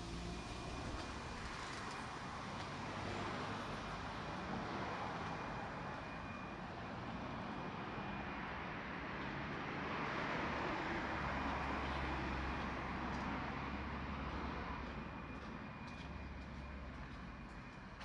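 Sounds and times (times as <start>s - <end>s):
vehicle passing with tyre noise: 0.0s - 6.5s.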